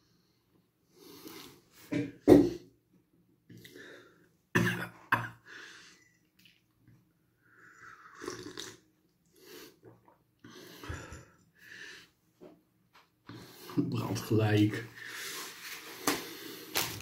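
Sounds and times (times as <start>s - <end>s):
breathing: 3.6s - 4.3s, 5.4s - 6.1s, 10.4s - 12.2s, 13.3s - 13.8s, 14.9s - 16.9s
man coughing: 4.6s - 5.4s
slurping drink from mug: 7.6s - 8.8s.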